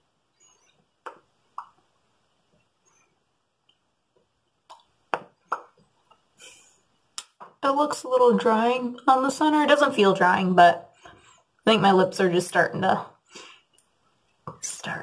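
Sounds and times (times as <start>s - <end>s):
lips smacking and popping: 0.6s - 1.9s, 4.5s - 6.3s, 7.1s - 7.6s.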